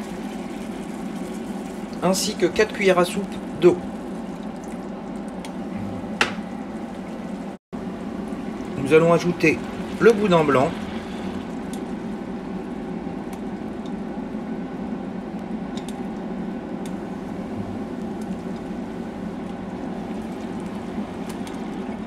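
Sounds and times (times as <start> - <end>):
cream sauce bubbling in a pan: 0.0 - 5.6.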